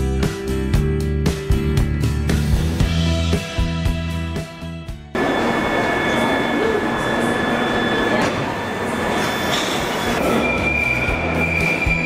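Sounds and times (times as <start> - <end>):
high whining tones: 5.2 - 12.0
train running noise: 5.2 - 12.0.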